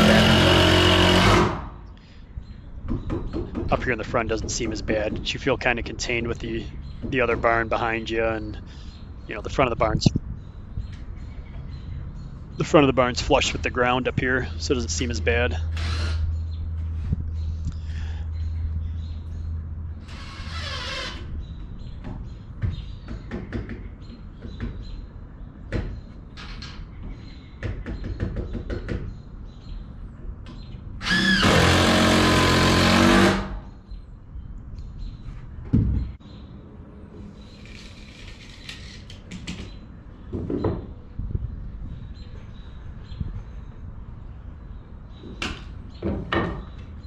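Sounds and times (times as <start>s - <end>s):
power tool running: 0.0s - 1.7s, 15.7s - 16.2s, 31.0s - 33.6s.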